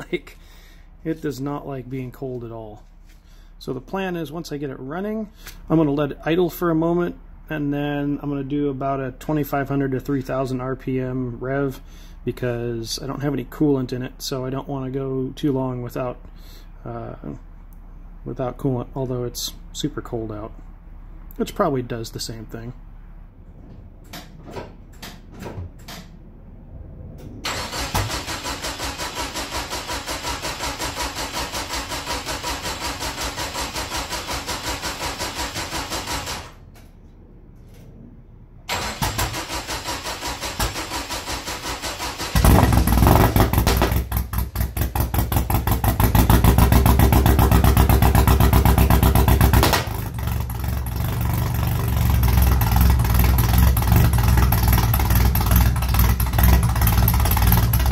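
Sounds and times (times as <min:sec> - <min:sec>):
starter motor cranking: 0:27.4 - 0:36.6, 0:38.7 - 0:51.1
car engine running loud: 0:40.9 - 0:57.9.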